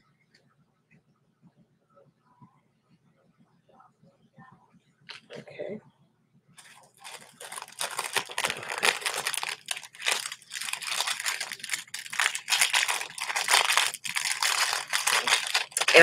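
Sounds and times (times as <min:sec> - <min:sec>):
packaging crinkling and rustling: 0:06.6 - 0:16.0.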